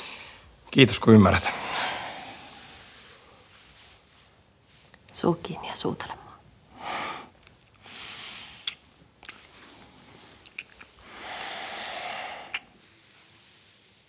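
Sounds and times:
breaths: 0.0 - 0.6, 1.4 - 3.6, 6.7 - 8.6, 11.0 - 13.3
wet lip smacks: 8.6 - 9.5, 10.4 - 10.9, 12.4 - 12.7.

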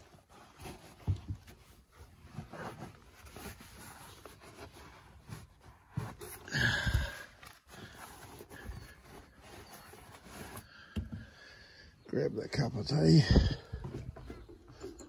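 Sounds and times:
denim rustling: 0.0 - 10.9
leather boots scuffing and knocking: 0.7 - 1.8.

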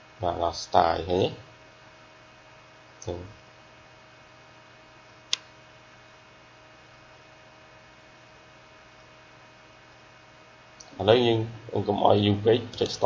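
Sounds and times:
mains hum and hiss: 0.0 - 13.0
sharp click: 5.3 - 5.5.

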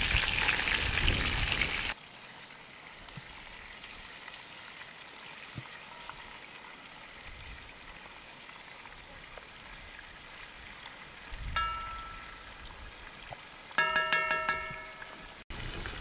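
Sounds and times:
chicken sizzling in hot oil: 0.0 - 2.0.

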